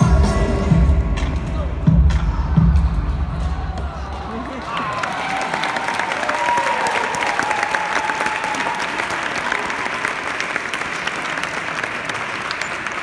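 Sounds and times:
crowd applauding: 0:03.7 - 0:13.0.

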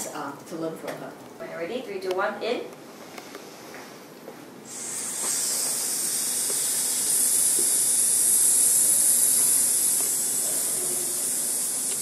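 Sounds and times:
people exhaling in a hiss: 0:04.7 - 0:12.0.

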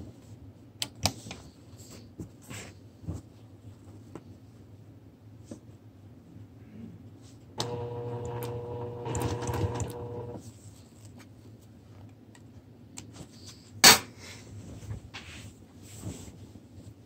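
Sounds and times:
sewing machine running: 0:07.6 - 0:10.4.

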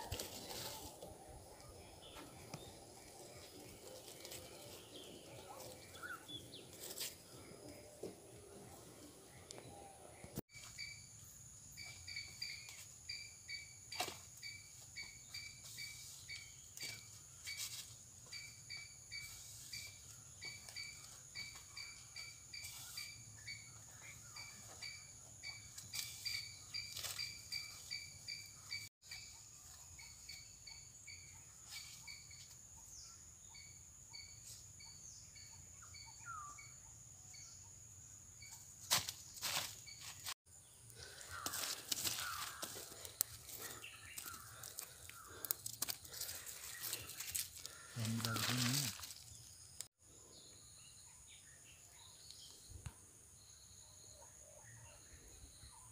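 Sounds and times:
bird chirping: 0:01.3 - 0:45.4.

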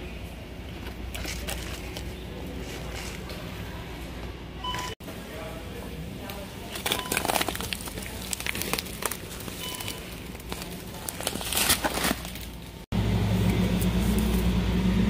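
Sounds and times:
refrigerator low hum: 0:00.0 - 0:15.0
plastic packaging crinkling: 0:06.6 - 0:12.8.

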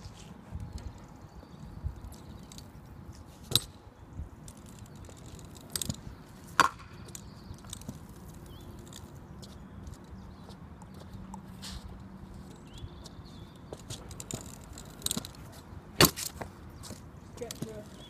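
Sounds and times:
scooter wheels clacking on concrete: 0:04.4 - 0:10.2, 0:13.7 - 0:18.0.

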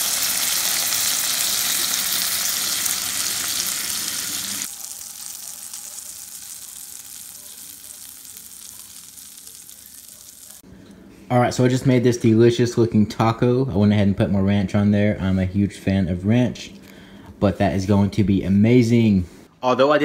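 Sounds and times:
fish fillets frying in butter: 0:00.0 - 0:10.6.

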